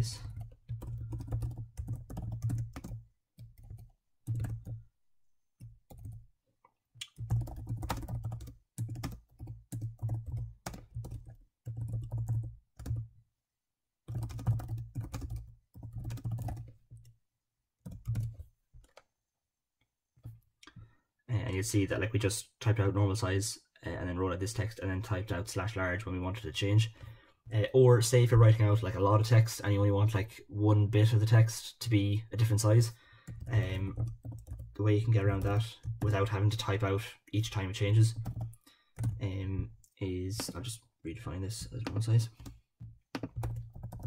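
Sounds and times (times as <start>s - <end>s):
typing on computer keyboard: 0.2s - 4.8s, 5.6s - 6.2s, 7.0s - 13.1s, 14.1s - 17.1s, 17.8s - 19.0s, 33.2s - 36.3s, 38.2s - 39.2s, 41.8s - 44.0s.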